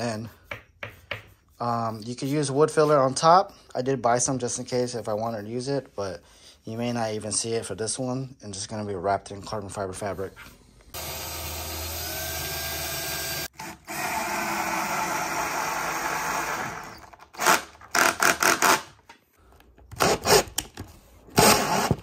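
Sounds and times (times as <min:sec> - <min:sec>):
cordless drill boring: 0:11.0 - 0:18.8
drill driving screws in bursts: 0:11.0 - 0:18.9.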